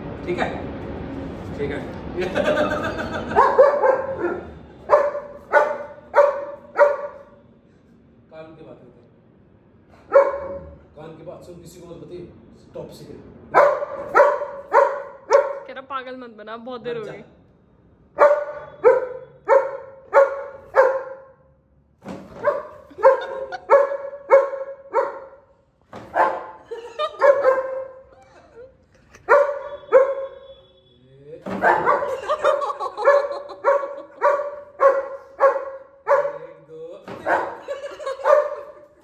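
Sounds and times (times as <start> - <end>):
dog barking: 3.3 - 7.4, 10.0 - 10.7, 13.5 - 15.7, 18.2 - 21.4, 22.4 - 25.5, 26.1 - 28.1, 29.2 - 30.5, 31.5 - 36.5, 37.2 - 38.9.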